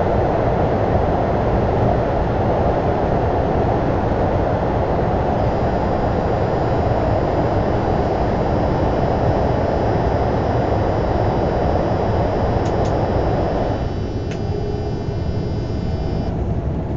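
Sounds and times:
sharp clicks: 5.4s - 16.3s.

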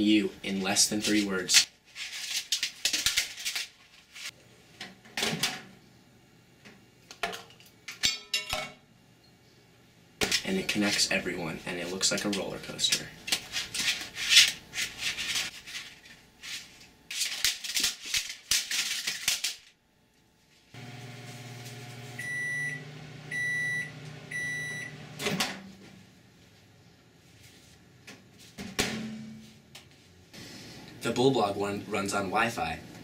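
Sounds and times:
microwave oven humming: 20.8s - 25.9s
microwave beeps: 21.9s - 25.2s.

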